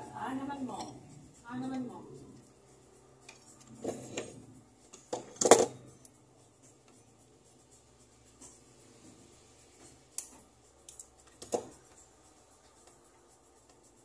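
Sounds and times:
metal tools clicking: 0:10.1 - 0:12.0.

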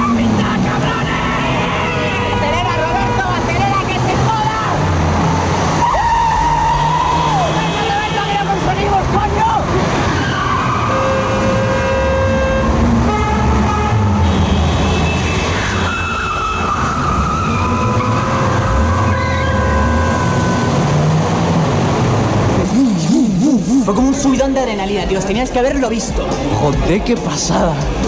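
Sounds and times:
car engine running hard: 0:00.0 - 0:28.0
car horns blasting: 0:01.3 - 0:04.0, 0:10.8 - 0:21.1.

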